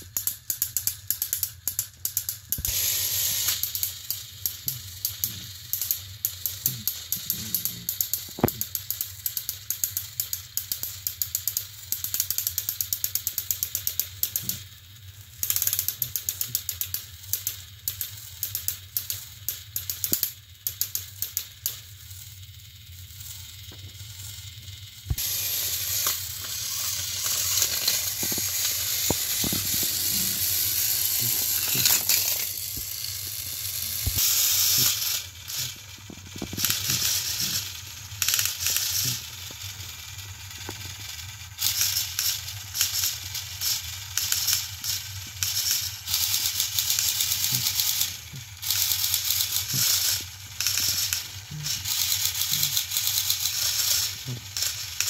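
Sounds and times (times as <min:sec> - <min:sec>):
toy engine motors clicking: 0:00.0 - 0:55.0
toy motor whirring: 0:00.0 - 0:55.0.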